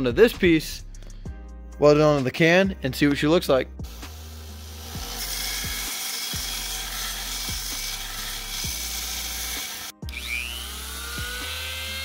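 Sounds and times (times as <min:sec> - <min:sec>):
belt sander grinding metal: 0:03.9 - 0:12.0.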